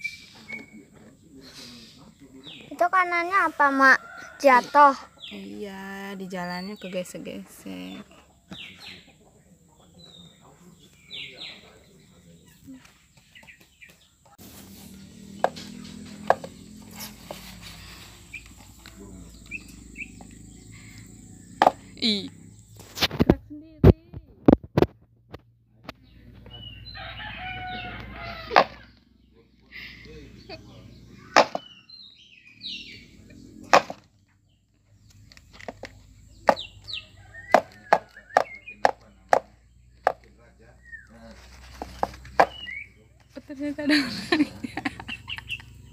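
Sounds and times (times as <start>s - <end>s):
sharp knocks: 31.4s - 31.7s.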